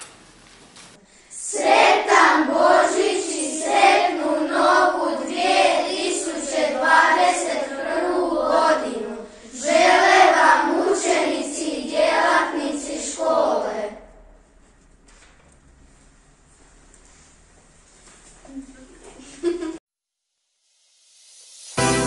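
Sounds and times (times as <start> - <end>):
children singing: 1.4 - 14.1.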